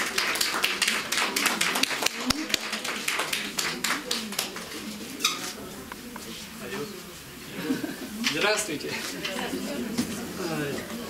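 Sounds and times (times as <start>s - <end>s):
small audience applauding: 0.0s - 5.0s
murmur of voices: 0.0s - 11.0s.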